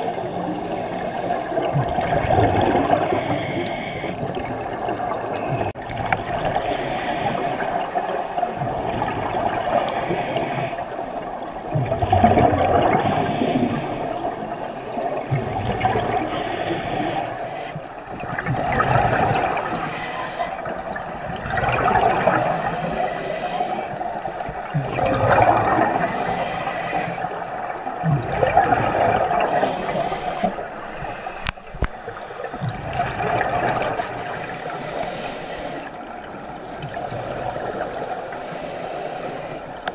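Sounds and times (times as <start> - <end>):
bubbles exhaled through regulator: 0.0 - 10.8, 11.5 - 17.2, 18.1 - 19.9, 20.6 - 23.1, 24.5 - 26.4, 27.3 - 31.9, 32.6 - 34.3
underwater water noise: 0.0 - 39.9.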